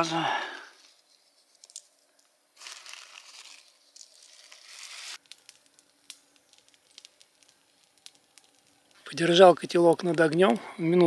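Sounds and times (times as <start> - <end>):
plastic bag crinkling: 2.6 - 9.1.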